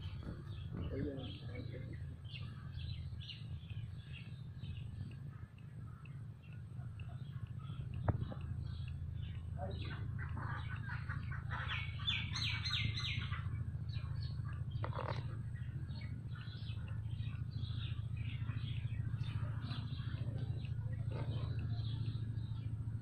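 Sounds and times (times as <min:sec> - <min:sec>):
small birds chirping: 0:00.0 - 0:23.0
steady low hum: 0:00.0 - 0:23.0.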